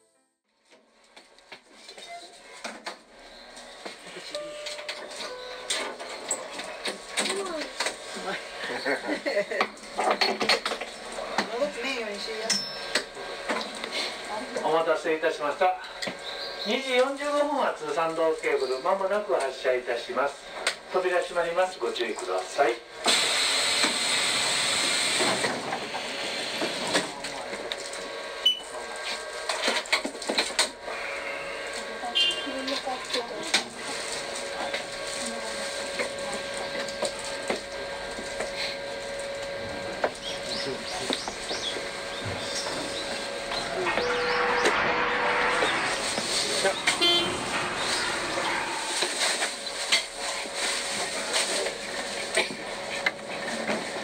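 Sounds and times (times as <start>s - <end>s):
faint held tone: 43.6s - 49.9s.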